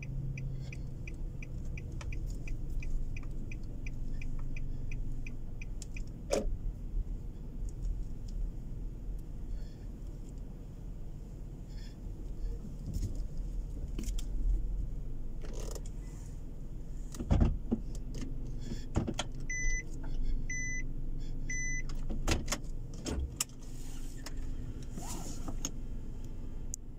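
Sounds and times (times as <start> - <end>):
low steady hum: 0.0 - 17.2, 17.8 - 26.9
handling clicks and knocks in car: 0.7 - 4.6, 5.7 - 6.6, 15.4 - 16.0, 17.0 - 20.2, 21.5 - 25.8
electronic beeps: 19.5 - 19.8.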